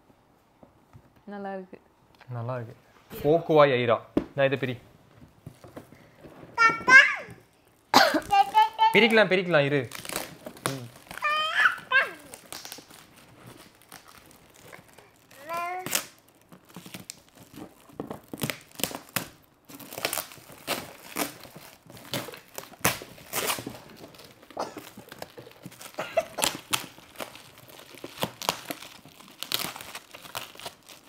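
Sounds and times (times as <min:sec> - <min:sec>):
wrapping paper crinkling and tearing: 0:08.1 - 0:31.0.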